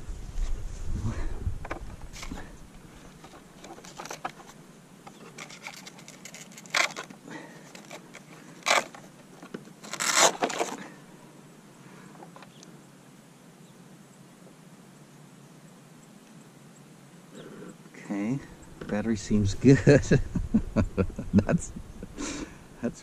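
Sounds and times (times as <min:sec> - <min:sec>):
foam and plastic crackles: 0:03.2 - 0:10.9
scraping ripping sounds: 0:05.2 - 0:09.1, 0:09.8 - 0:10.9.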